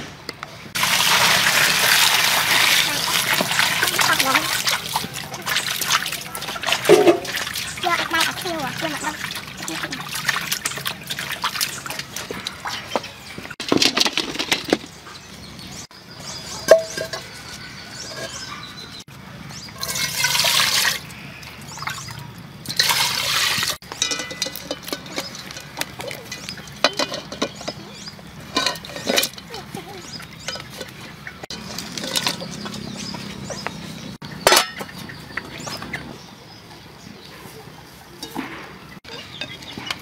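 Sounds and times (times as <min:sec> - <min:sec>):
water poured into metal pot: 0:00.8 - 0:12.8, 0:19.8 - 0:22.1, 0:22.7 - 0:27.3
water splashing in a basin: 0:00.8 - 0:13.8, 0:19.8 - 0:33.6.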